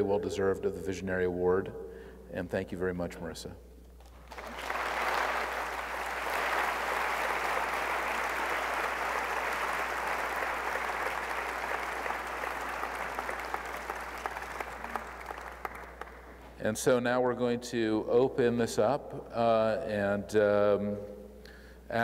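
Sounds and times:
audience applauding: 4.1s - 16.4s.

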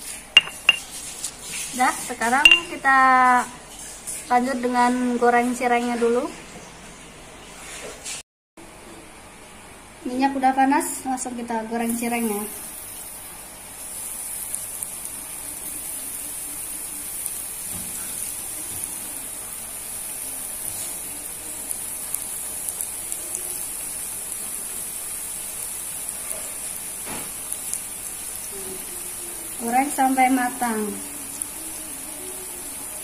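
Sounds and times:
fritters sizzling in hot oil: 0.0s - 2.9s, 11.8s - 33.0s.

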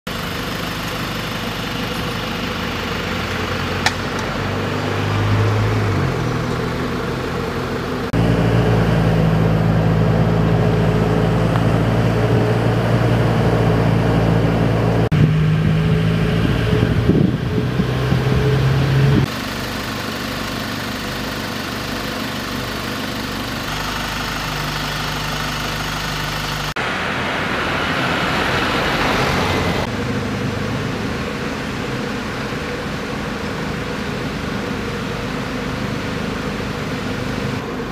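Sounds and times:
road noise: 0.1s - 37.9s
utility vehicle engine running: 0.1s - 37.9s
wind noise: 14.8s - 19.3s.

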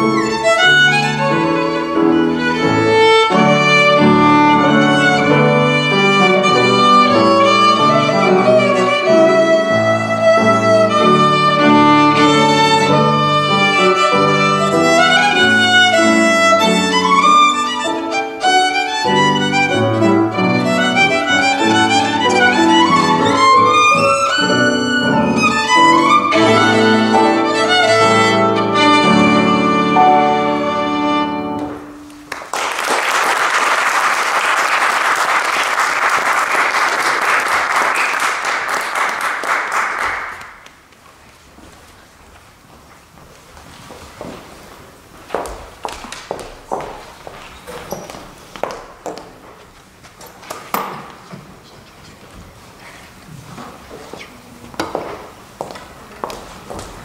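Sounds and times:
violin: 0.0s - 32.2s
piano accompaniment: 0.0s - 32.6s
audience applause: 32.3s - 40.7s.

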